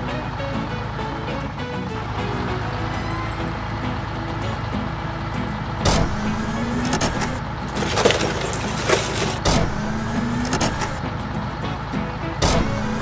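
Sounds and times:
heavy vehicle engine revving: 5.8 - 11.1
junk knocking and clattering: 6.8 - 9.7.

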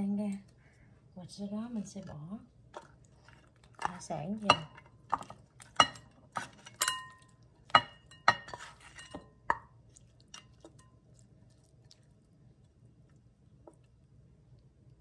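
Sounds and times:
utensils clinking against glass bowl: 3.8 - 9.6.

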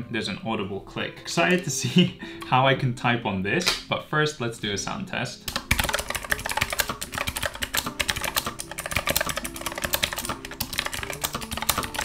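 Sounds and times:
clicky mechanical keyboard typing: 5.5 - 12.0.

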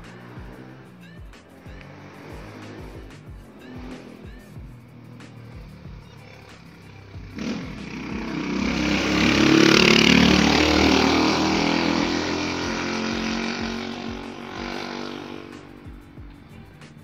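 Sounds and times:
vehicle engine passing by: 0.0 - 17.0.

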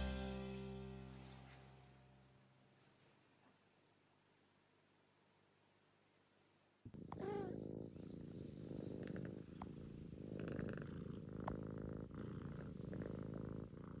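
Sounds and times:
cat purring: 6.8 - 14.0.

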